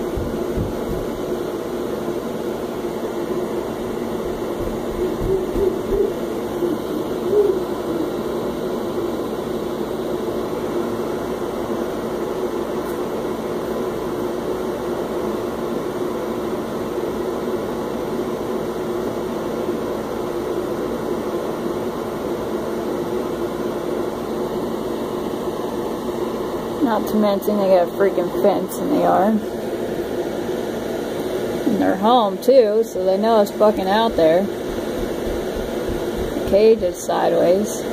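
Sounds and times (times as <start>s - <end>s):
mechanical hum: 0.0s - 37.9s
steady hiss: 29.0s - 37.9s.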